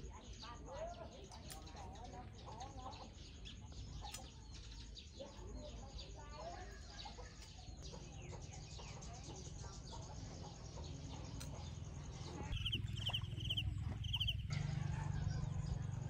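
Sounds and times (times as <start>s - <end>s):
small birds chirping: 0.0s - 14.5s
steady low hum: 11.3s - 16.0s.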